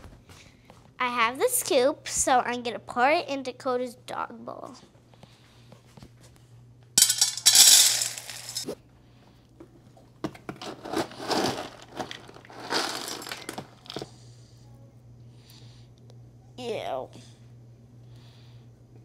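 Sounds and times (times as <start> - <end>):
kibble rattling into metal bowl: 7.0 - 8.7, 10.6 - 14.0.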